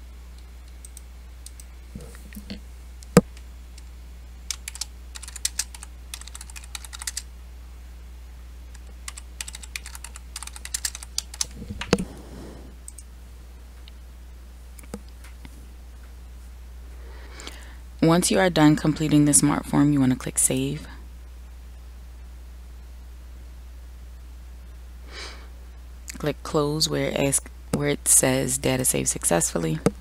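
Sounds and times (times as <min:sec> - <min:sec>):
steady low hum: 0:00.0 - 0:30.0
typing on computer keyboard: 0:04.5 - 0:07.2, 0:08.7 - 0:12.0.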